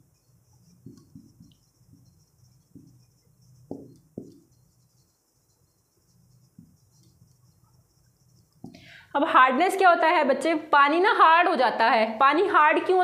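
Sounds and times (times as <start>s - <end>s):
faint low hum: 0.0s - 9.1s
soft dull knocks: 0.8s - 2.0s, 2.7s - 3.0s, 3.6s - 4.5s.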